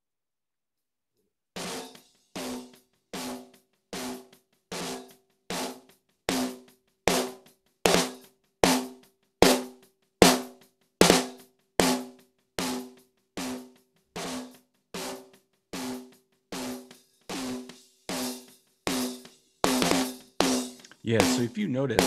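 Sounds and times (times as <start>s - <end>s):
compressed snare drum hits: 14.2s - 22.0s.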